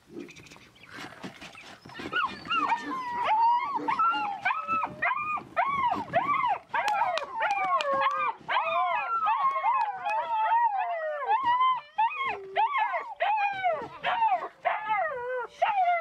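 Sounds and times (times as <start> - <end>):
puppy whining and yelping: 1.8 - 16.0.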